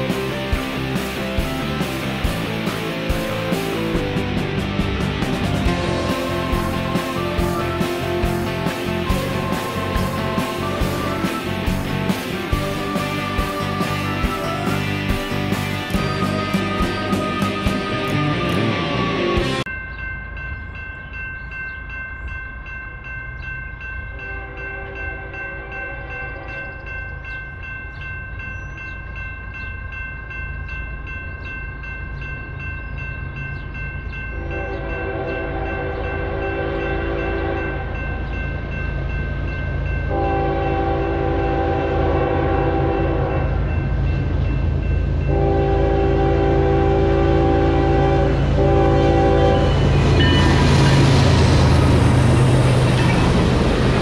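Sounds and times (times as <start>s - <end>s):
crossing bell ringing: 0.0s - 54.0s
locomotive air horn blasts: 34.4s - 38.2s, 40.1s - 43.7s, 45.3s - 50.9s
locomotive low rumble: 37.5s - 54.0s.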